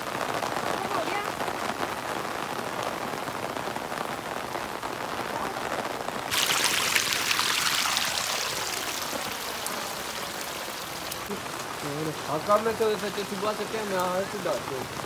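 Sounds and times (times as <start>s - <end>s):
heavy rain on wet ground: 0.0s - 15.0s
splashing water hiss: 6.3s - 12.1s.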